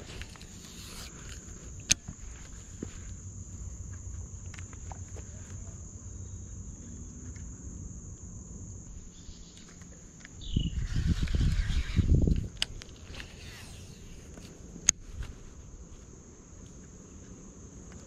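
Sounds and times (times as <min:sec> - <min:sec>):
high-pitched insect buzz: 0:00.0 - 0:05.0, 0:05.6 - 0:14.9
wind rumble on microphone: 0:10.4 - 0:16.1.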